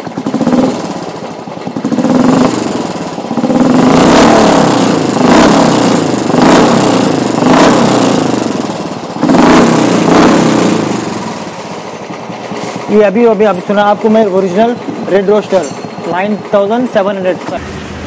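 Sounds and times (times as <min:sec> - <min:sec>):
motorcycle engine revving: 0:00.0 - 0:13.0, 0:17.4 - 0:18.0.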